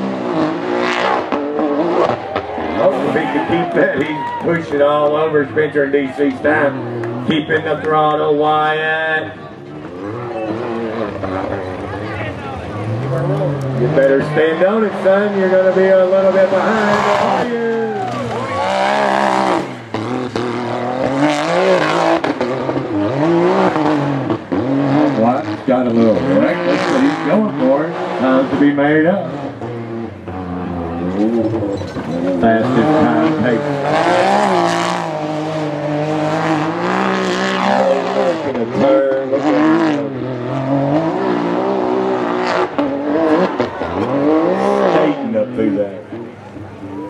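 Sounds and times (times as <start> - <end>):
engine revving at full throttle: 0.0 - 46.8.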